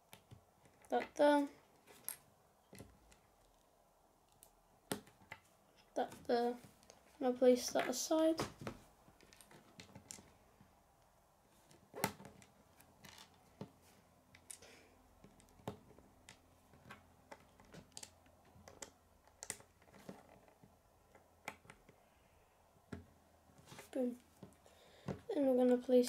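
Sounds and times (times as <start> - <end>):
plastic bricks clicking and tapping: 15.2 - 22.0.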